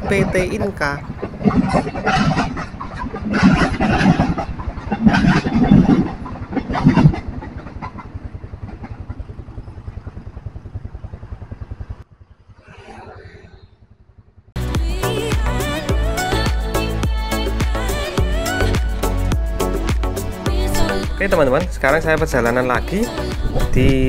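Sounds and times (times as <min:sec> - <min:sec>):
music: 0:14.6 - 0:24.0.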